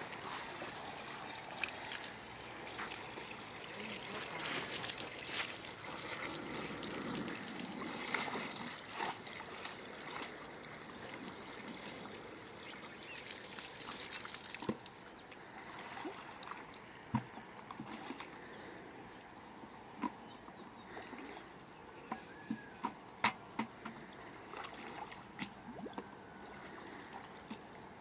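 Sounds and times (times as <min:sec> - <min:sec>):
water pouring and splashing: 0:00.0 - 0:18.4, 0:23.8 - 0:27.6.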